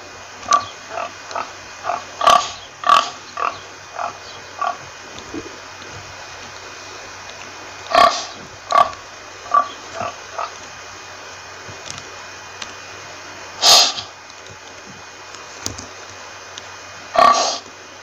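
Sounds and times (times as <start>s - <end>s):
pig grunting: 0.4s - 6.4s, 7.9s - 10.6s, 17.1s - 17.6s.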